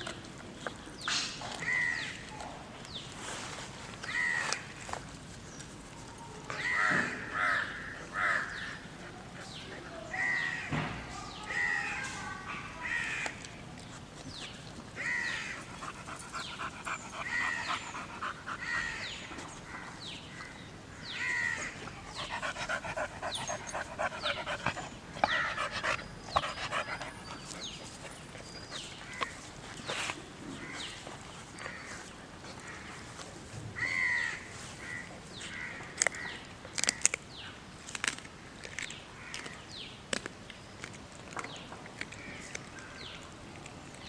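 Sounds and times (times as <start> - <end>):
dog panting: 15.5 - 19.6, 21.9 - 29.6
dog chewing and tearing meat: 36.0 - 44.0.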